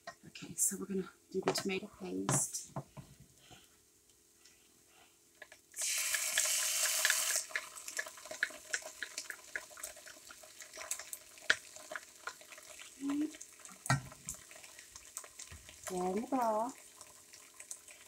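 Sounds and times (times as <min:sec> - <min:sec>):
crackle of small pops: 0:05.4 - 0:16.0
vegetables sizzling in pot: 0:05.7 - 0:18.0.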